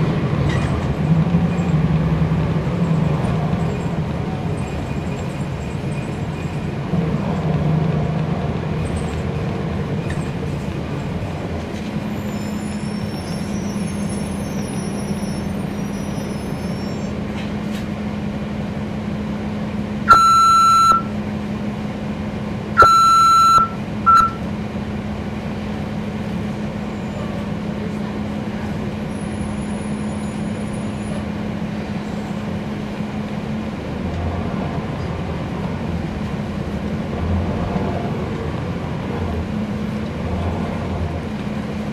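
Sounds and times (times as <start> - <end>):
bus diesel engine drone: 0.0 - 41.9
electronic beeps: 20.1 - 21.1, 22.8 - 24.4.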